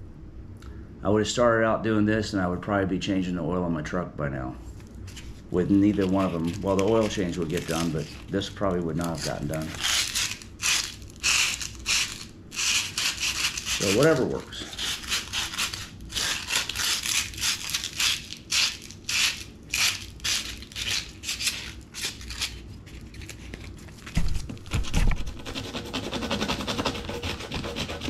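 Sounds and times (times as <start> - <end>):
sandpaper rasping on metal: 9.1 - 22.6, 25.3 - 28.0.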